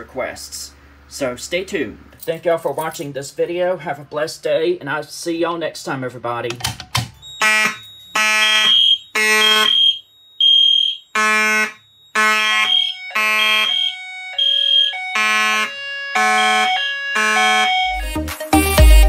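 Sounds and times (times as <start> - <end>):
buzzy fire alarm horn: 7.2 - 18.4
high pure-toned alarm horn: 7.2 - 19.0.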